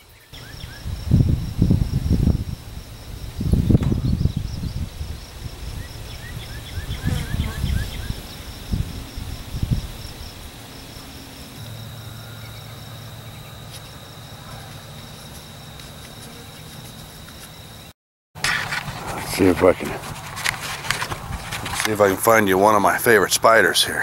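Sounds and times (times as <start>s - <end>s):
insects chirping and droning: 0.0s - 24.0s
low gusty rumbles: 0.6s - 13.3s, 18.9s - 21.8s.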